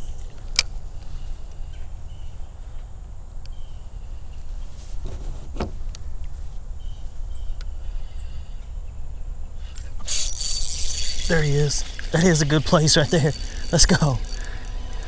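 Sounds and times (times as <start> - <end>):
fishing reel clicks: 10.0 - 15.0.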